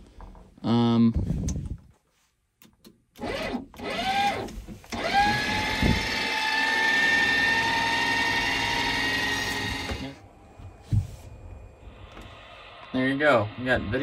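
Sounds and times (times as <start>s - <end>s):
electric motor whining: 3.2s - 10.2s.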